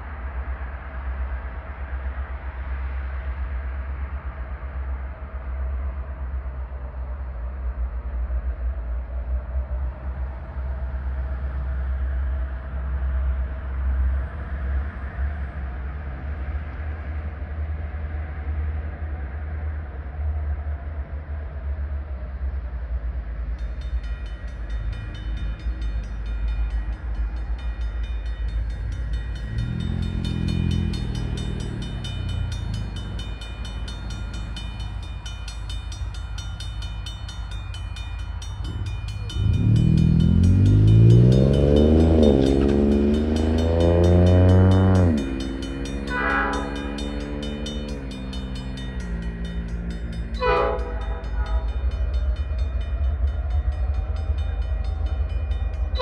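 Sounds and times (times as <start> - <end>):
diesel locomotive engine rumble: 0.0 - 56.0
high ringing sound: 24.1 - 56.0.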